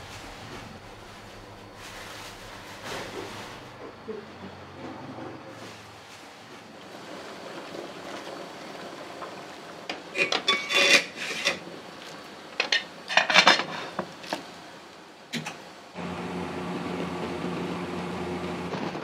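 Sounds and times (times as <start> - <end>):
dishes and utensils clattering: 9.9 - 11.6, 12.6 - 14.1.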